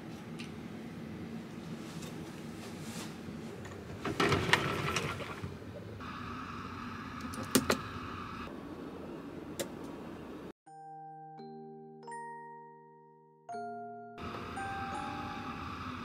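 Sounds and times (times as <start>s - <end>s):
soft chime music: 10.7s - 16.0s.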